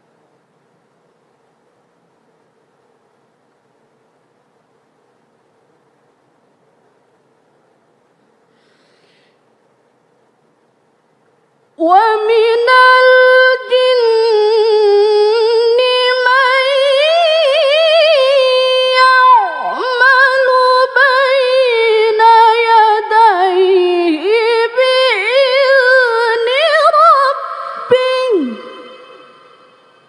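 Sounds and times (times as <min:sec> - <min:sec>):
woman reciting melodically: 0:11.8 - 0:30.0.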